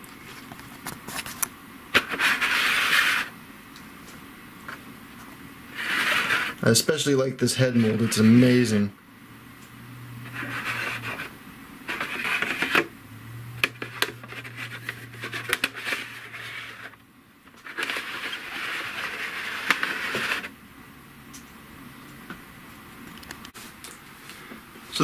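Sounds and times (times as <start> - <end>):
plastic scratchy rubbing: 2.0 - 3.3, 5.7 - 6.6, 7.6 - 8.6, 10.2 - 12.9, 13.6 - 20.5.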